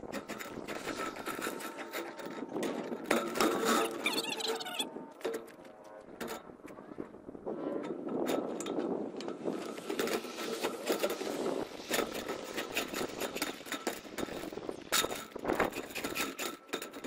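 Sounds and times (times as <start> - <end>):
metal chimney liner crinkling: 0.0 - 17.0.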